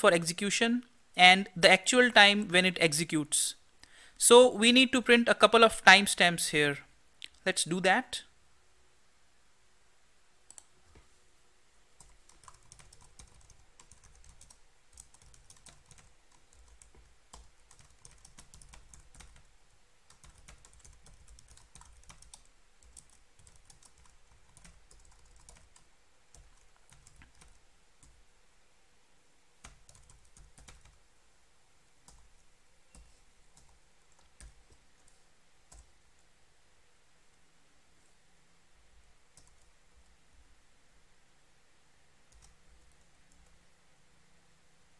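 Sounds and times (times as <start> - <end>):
faint keyboard typing: 10.4 - 11.2, 12.0 - 28.2, 29.6 - 31.0, 32.0 - 36.3, 39.3 - 40.2, 42.3 - 43.6.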